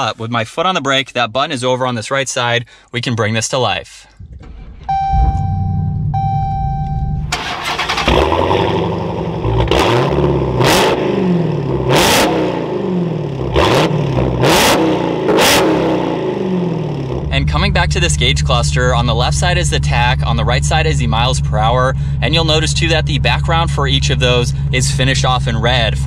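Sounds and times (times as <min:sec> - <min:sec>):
car engine starting and idling: 0:04.1 - 0:26.0
engine revving: 0:07.2 - 0:26.0.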